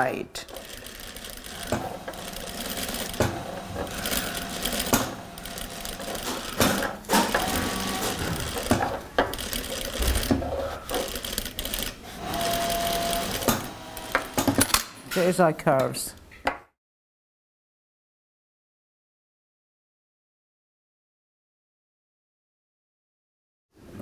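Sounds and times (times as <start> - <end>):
sewing machine stitching: 0.5 - 14.7.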